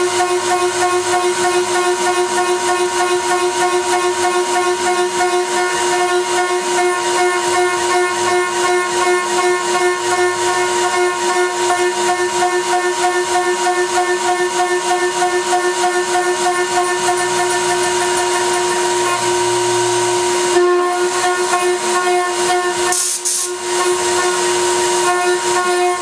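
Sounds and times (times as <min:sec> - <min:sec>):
router spindle cutting whine: 0:00.0 - 0:26.0
brief hiss: 0:22.9 - 0:23.5.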